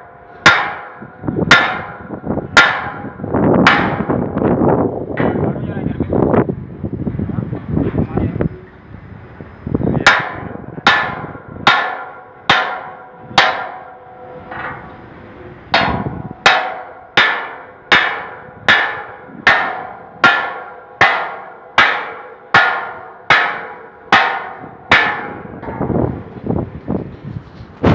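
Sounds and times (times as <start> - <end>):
hammer striking steel: 0.0 - 4.4, 10.0 - 15.1, 15.7 - 26.2.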